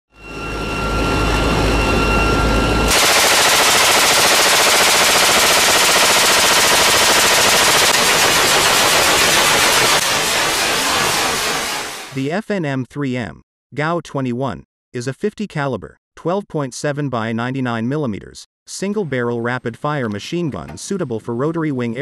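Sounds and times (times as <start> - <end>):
high whine over deep rumble: 0.2 - 12.2
machine gun rapid fire: 2.9 - 12.2.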